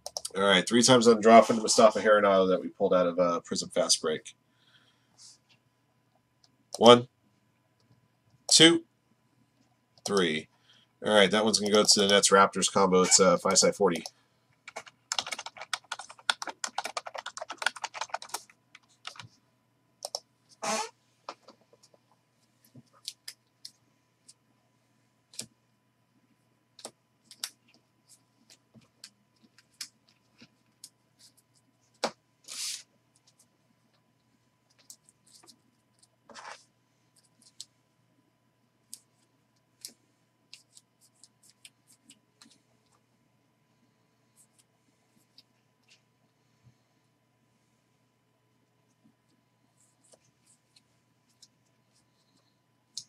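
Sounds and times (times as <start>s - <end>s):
computer keyboard typing: 13.9s - 19.3s, 20.0s - 20.3s, 26.8s - 27.8s
cards sliding rustle: 32.4s - 32.9s.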